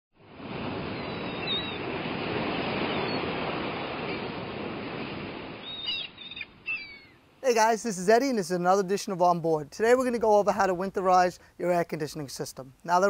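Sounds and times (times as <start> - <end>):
waves breaking: 0.2 - 5.8.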